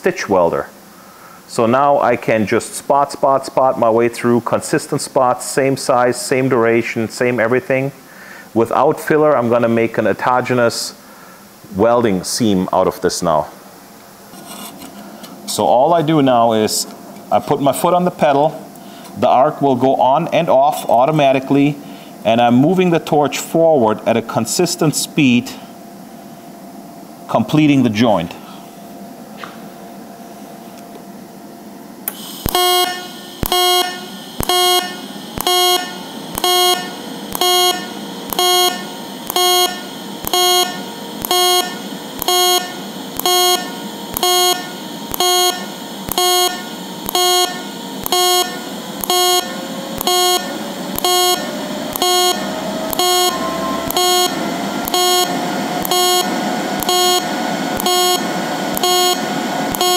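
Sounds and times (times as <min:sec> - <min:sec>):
welding arc buzzing: 0:32.0 - 0:59.9.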